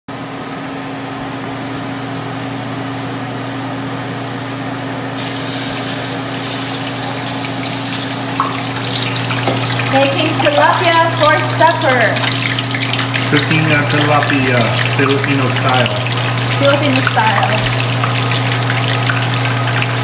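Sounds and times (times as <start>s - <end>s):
fish sizzling in hot oil: 5.2s - 20.0s.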